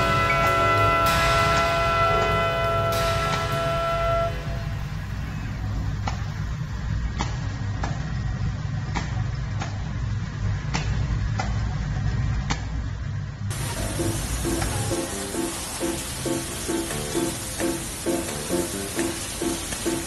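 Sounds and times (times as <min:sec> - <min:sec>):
machine hum: 0:00.0 - 0:20.0.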